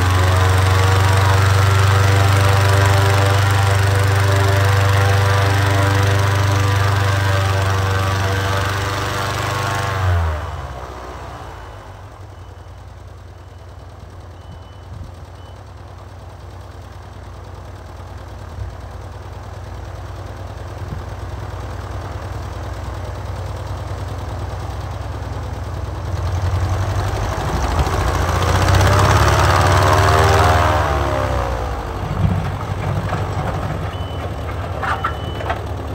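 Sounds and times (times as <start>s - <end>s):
engine revving and idling: 0.0s - 12.4s, 20.8s - 35.9s.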